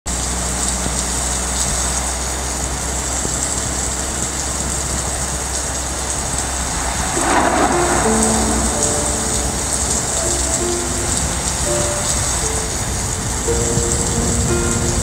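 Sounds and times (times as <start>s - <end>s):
vehicle driving on wet road: 0.1s - 15.0s
musical notes: 6.3s - 15.0s.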